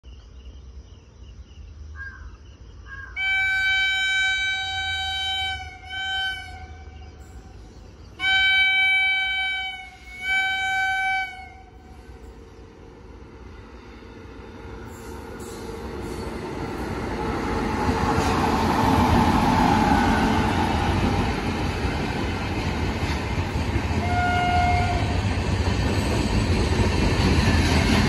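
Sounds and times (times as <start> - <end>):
low train rumble: 0.5 - 28.0
locomotive horn blasts: 3.2 - 7.1, 8.2 - 11.9, 24.0 - 25.1.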